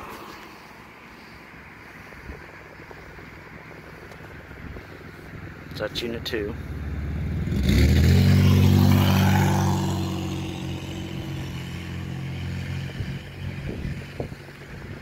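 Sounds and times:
car passing close by: 6.6s - 14.3s.

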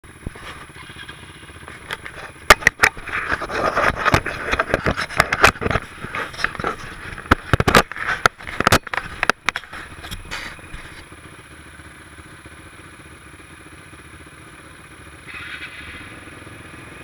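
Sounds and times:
quad bike engine running: 0.0s - 17.0s
sharp knocks and clatter: 1.6s - 11.1s.

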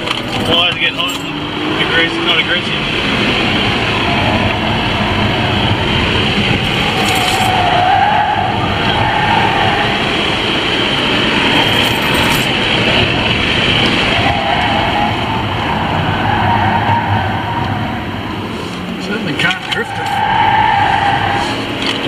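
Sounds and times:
car engine revving: 0.0s - 22.0s
road noise inside car: 0.0s - 22.0s.

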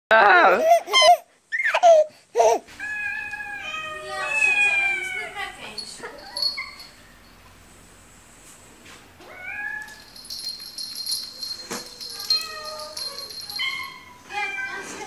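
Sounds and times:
cat meowing: 2.8s - 5.4s.

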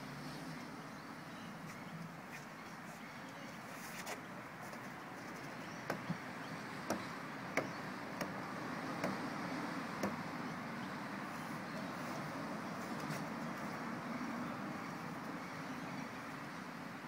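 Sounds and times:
outdoor background noise: 0.0s - 17.0s
short sharp knocks: 6.9s - 8.4s, 9.0s - 9.2s.

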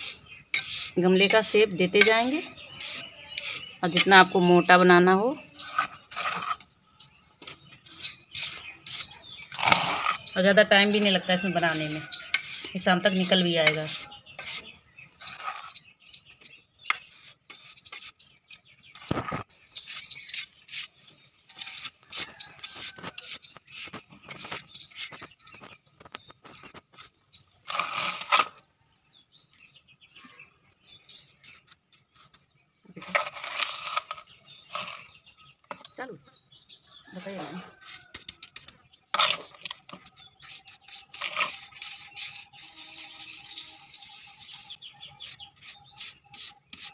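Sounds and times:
trowel scraping wet mortar: 0.0s - 4.5s, 5.4s - 6.7s, 7.5s - 25.2s, 27.6s - 28.6s, 33.0s - 36.0s, 37.6s - 46.9s
faint birds chirping: 0.0s - 46.9s.

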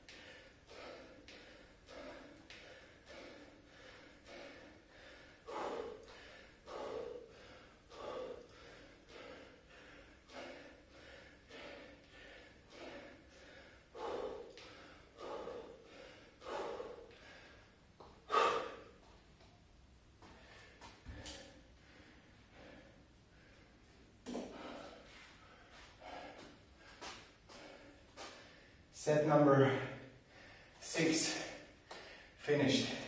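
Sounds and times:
man exhaling sharply: 18.3s - 19.0s.

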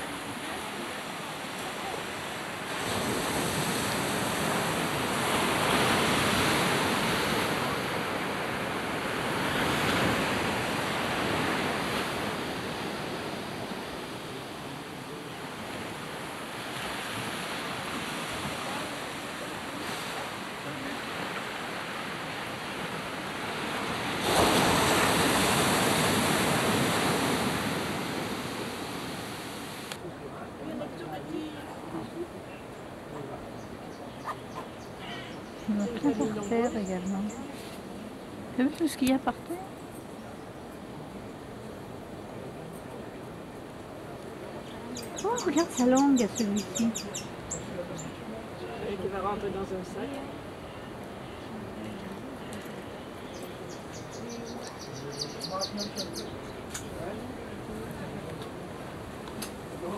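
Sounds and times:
small waves breaking on sand: 0.0s - 33.8s, 56.1s - 59.9s.

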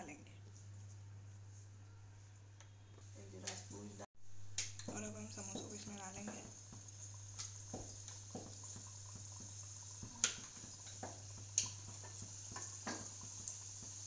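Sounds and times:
frying in hot oil sizzle: 3.1s - 14.0s.

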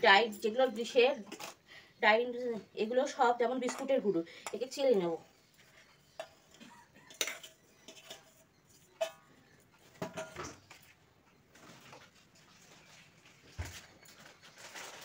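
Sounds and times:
metal bowls clinking and knocking: 0.2s - 1.6s, 3.0s - 12.1s.

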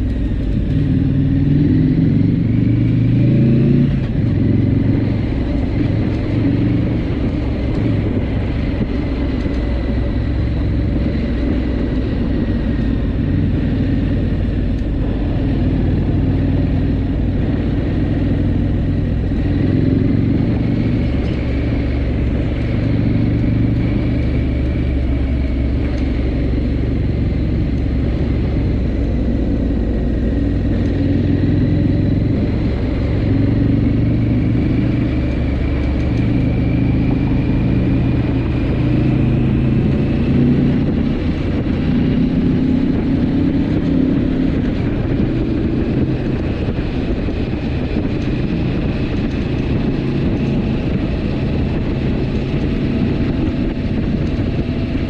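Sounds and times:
motorcycle engine running: 0.0s - 55.0s
wind and road rush: 0.0s - 55.0s.

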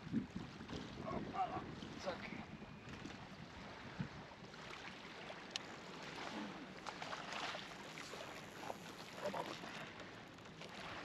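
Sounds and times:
river water flowing: 4.4s - 11.0s.

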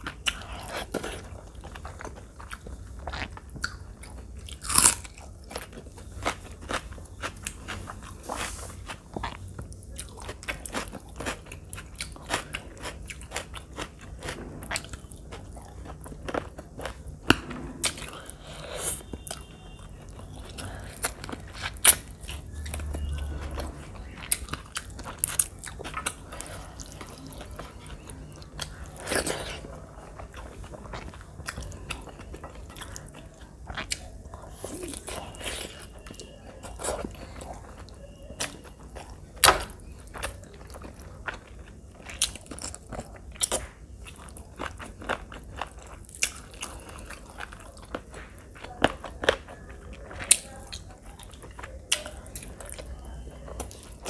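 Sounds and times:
person chewing food: 0.0s - 54.0s.

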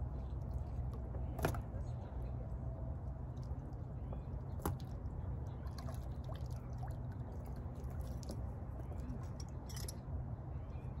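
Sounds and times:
steady low rumble: 0.0s - 11.0s
water drips and small splashes: 2.9s - 10.0s.

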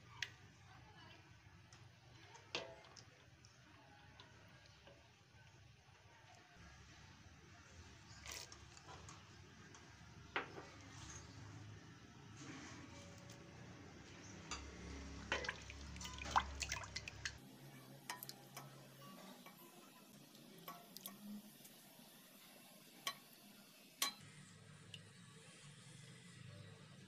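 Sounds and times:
batter sloshing: 15.0s - 17.4s
spoon clicking against pot: 18.1s - 18.7s, 24.0s - 24.2s.

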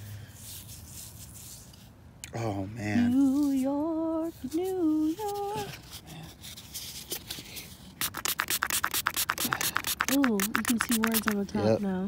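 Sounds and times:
scratching strokes on metal: 8.0s - 11.5s.

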